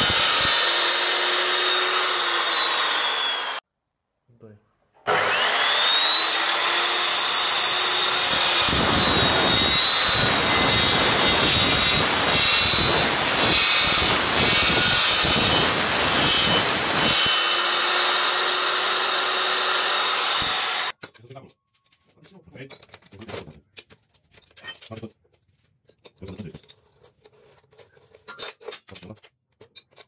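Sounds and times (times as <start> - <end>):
saw blade cutting steel: 0.0 - 3.6, 5.1 - 21.0
saw motor whining: 0.0 - 3.6, 5.1 - 20.9.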